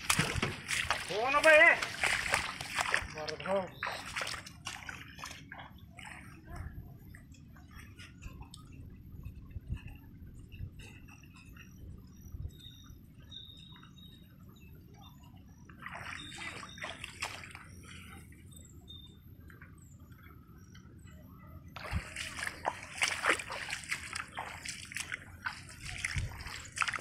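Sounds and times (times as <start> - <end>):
water splashing: 0.0 - 6.6, 15.8 - 18.2, 21.8 - 27.0
muddy water sloshing: 0.0 - 12.7, 15.6 - 18.6, 21.7 - 27.0
low steady rumble: 0.0 - 27.0.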